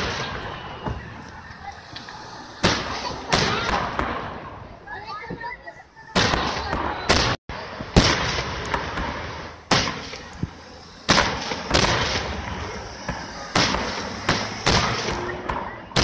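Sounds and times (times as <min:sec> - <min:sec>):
fireworks shells bursting: 0:07.2 - 0:15.7.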